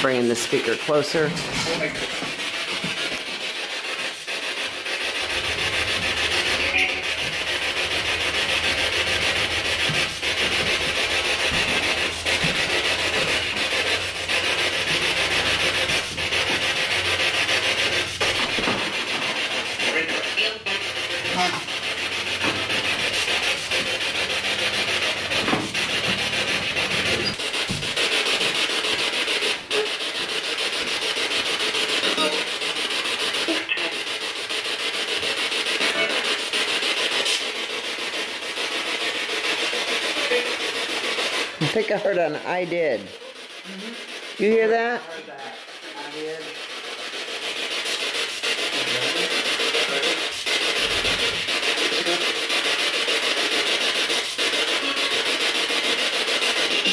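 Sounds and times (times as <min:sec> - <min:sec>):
radio static hiss: 0:19.8 - 0:21.7, 0:31.8 - 0:34.3.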